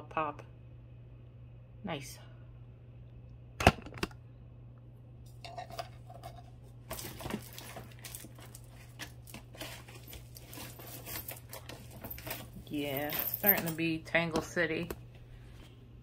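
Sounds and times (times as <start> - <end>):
rustling: 6.9 - 13.8
jewelry chains and beads clinking: 6.9 - 14.0.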